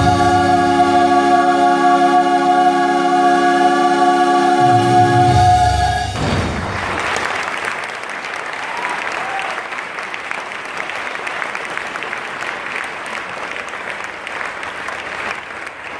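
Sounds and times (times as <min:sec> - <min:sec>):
choir final chord: 0:00.0 - 0:06.2
audience applauding: 0:06.4 - 0:15.9.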